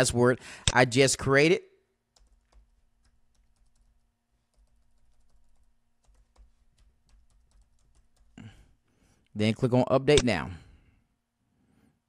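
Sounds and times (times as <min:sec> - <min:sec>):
faint steady hum: 0:00.0 - 0:12.0
computer keyboard keystrokes: 0:02.2 - 0:08.4.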